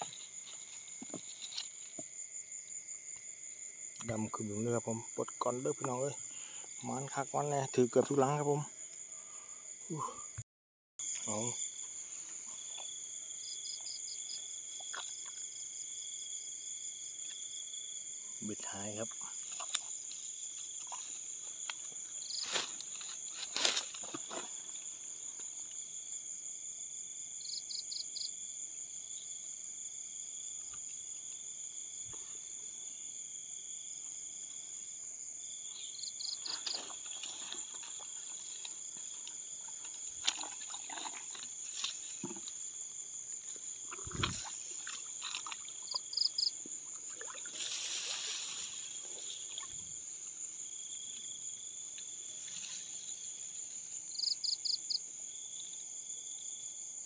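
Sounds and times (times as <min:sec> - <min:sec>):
grass rustling and clicking: 0:00.0 - 0:02.2, 0:19.3 - 0:25.8, 0:36.3 - 0:54.3
crickets trilling: 0:00.0 - 0:10.4, 0:11.0 - 0:57.0
quick insect chirps: 0:35.4 - 0:55.6.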